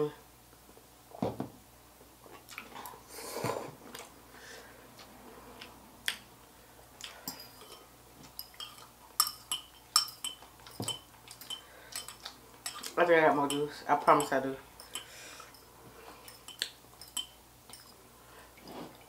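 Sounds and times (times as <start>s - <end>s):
cutlery clinking against bowls: 7.3s - 18.0s.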